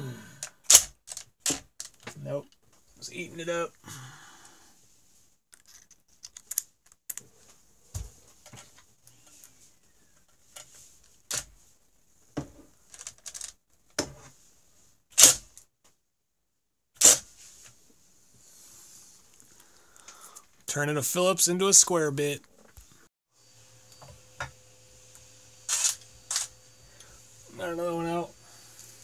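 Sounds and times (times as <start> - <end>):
drill bit skipping on screw: 25.7 - 26.5.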